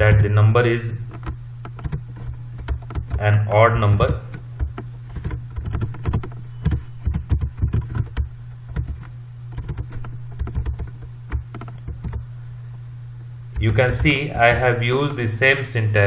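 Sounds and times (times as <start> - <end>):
steady low hum: 0.0 - 16.0
keyboard key clicks: 1.1 - 3.2, 4.0 - 12.2.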